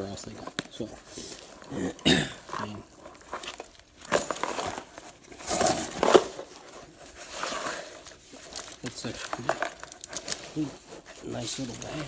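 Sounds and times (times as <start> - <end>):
fabric rustling: 2.4 - 12.0.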